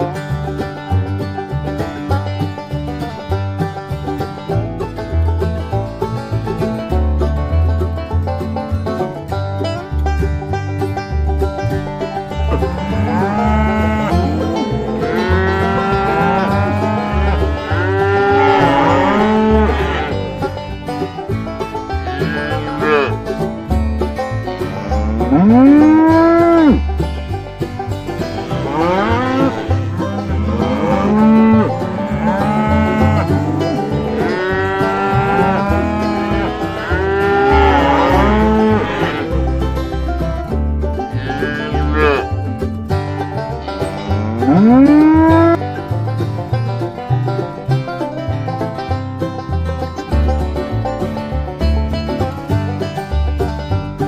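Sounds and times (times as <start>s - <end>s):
banjo music: 0.0s - 54.0s
cattle mooing: 12.5s - 20.4s, 22.0s - 23.2s, 24.4s - 26.8s, 28.4s - 39.6s, 41.1s - 42.4s, 43.6s - 45.6s.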